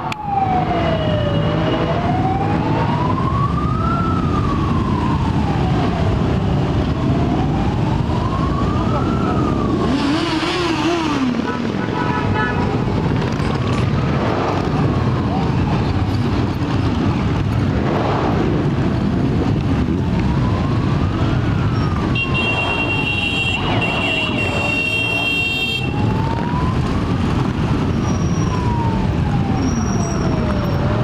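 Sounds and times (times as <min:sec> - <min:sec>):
siren wailing: 0:00.0 - 0:11.6, 0:12.3 - 0:17.5, 0:18.7 - 0:31.0
motorcycle and car engines rumbling: 0:00.0 - 0:31.0.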